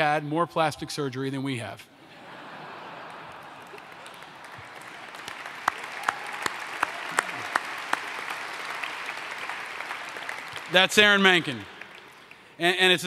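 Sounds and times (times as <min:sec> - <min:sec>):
audience applauding: 0:02.9 - 0:13.0
man clapping close to microphone: 0:03.6 - 0:12.6.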